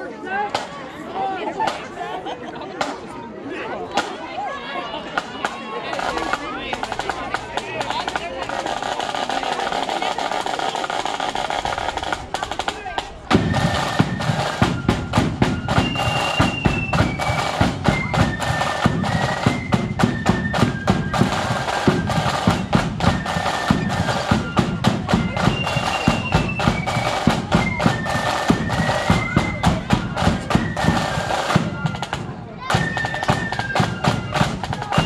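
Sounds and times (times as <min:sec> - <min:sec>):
rapid snare drumming: 0:05.2 - 0:35.0
high flute melody: 0:13.3 - 0:35.0.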